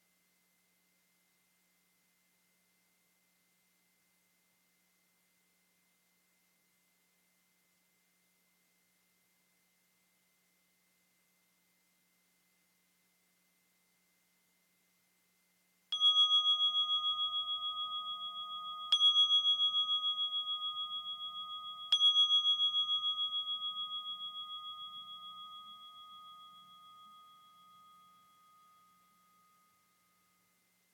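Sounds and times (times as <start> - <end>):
singing bowl ringing: 15.9 - 30.9.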